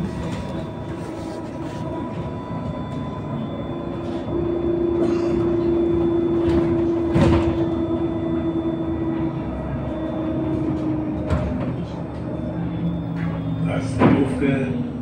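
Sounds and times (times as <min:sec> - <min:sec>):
bus road noise and drive hum: 0:00.0 - 0:15.0
steady whine: 0:00.0 - 0:15.0.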